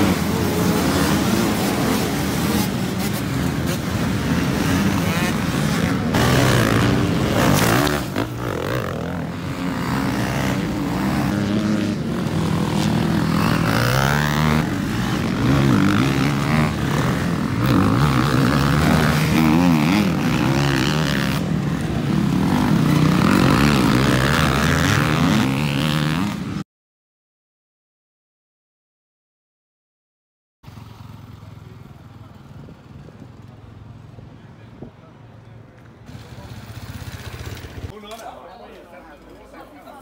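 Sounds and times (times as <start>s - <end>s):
motorcycle engines revving: 0.0s - 26.6s, 30.6s - 38.0s.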